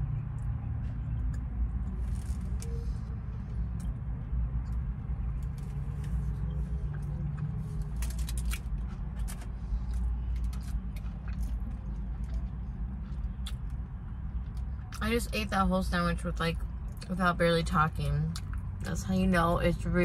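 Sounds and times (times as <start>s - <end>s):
low rumble inside car: 0.0s - 20.0s
chewing with wet mouth clicks: 6.9s - 15.0s.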